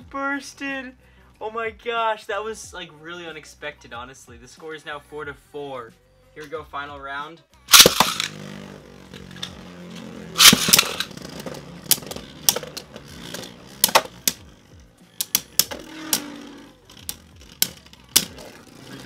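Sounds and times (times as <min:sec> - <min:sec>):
spinning tops clacking: 0:07.7 - 0:19.0
spinning tops whirring: 0:07.7 - 0:19.0.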